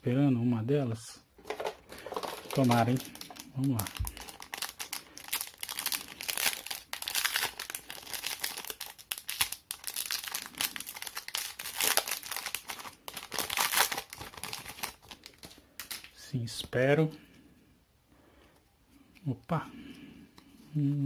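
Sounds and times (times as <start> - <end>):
foil wrapper crinkling: 1.6 - 16.1.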